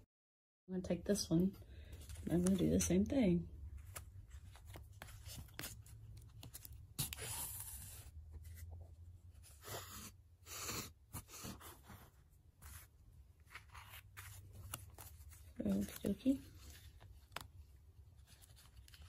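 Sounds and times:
thread and paper rustling: 11.8 - 19.0.

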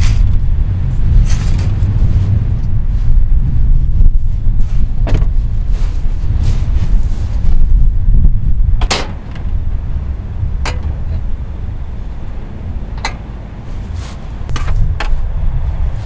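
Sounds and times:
car driving low rumble: 0.0 - 16.0
sharp clicks or knocks: 13.0 - 13.3.

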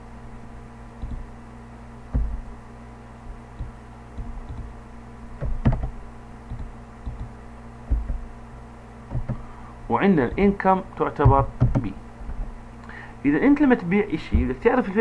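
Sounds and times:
electrical hum: 0.0 - 15.0
computer mouse clicks: 1.0 - 1.2, 3.6 - 4.7, 6.5 - 7.3
keyboard taps: 2.1 - 2.4, 3.6 - 4.7, 5.4 - 8.3, 9.1 - 9.4, 11.2 - 12.5.

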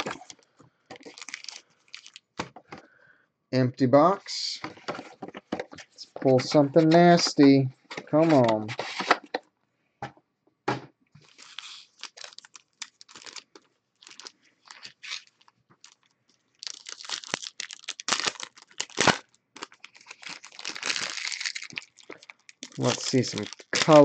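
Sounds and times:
plastic wrappers crinkling and tearing: 0.0 - 2.4, 8.0 - 9.1, 11.2 - 24.0.

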